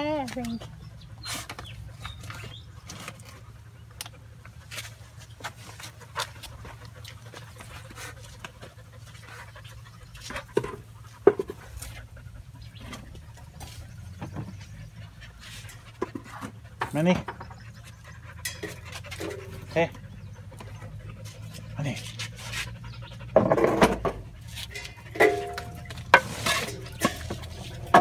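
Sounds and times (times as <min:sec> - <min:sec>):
dog sniffing and panting: 0:00.0 - 0:28.0.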